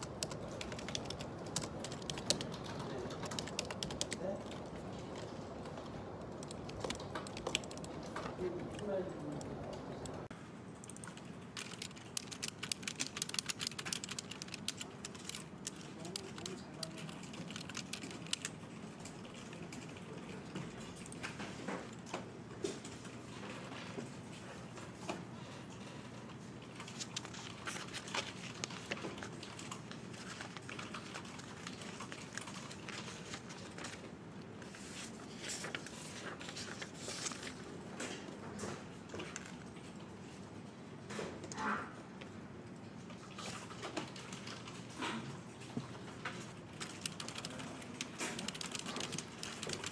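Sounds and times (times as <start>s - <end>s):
fast keyboard typing: 0.0s - 21.3s, 26.8s - 34.1s, 46.4s - 49.9s
paper rustling: 26.8s - 38.2s.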